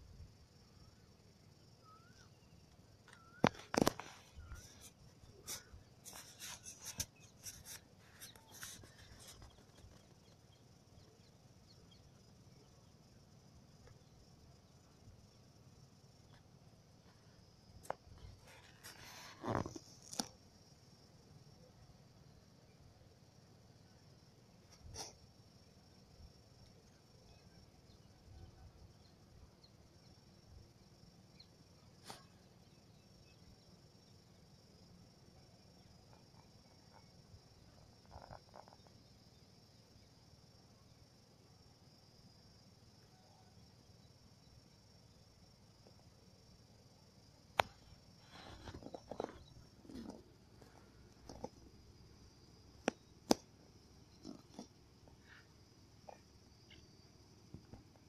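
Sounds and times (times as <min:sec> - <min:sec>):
high insect drone: 0:00.0 - 0:58.0.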